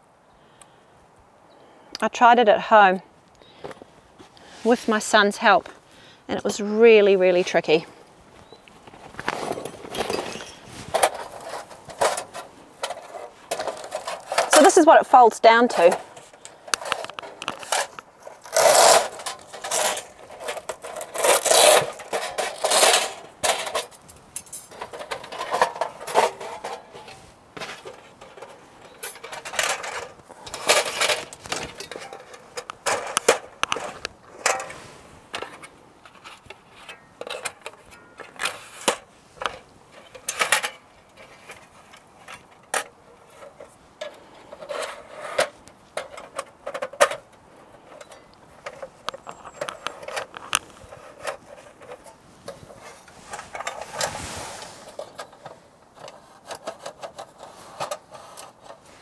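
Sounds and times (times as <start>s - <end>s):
metal panels clinking and rattling: 9.2s - 54.2s.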